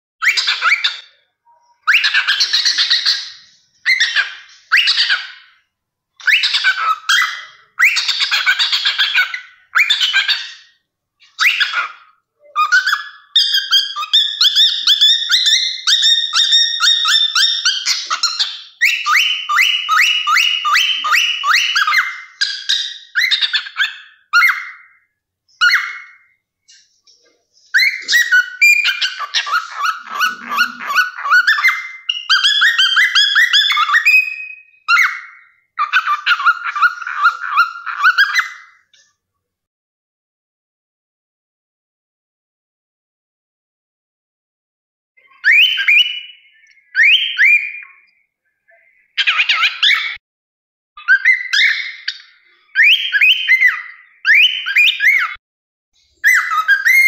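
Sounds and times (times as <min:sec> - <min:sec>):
cockatiel warbling: 0:00.2 - 0:05.6, 0:06.2 - 0:25.0, 0:27.7 - 0:38.8, 0:45.3 - 0:48.1, 0:51.0 - 0:55.4, 0:56.2 - 0:57.0.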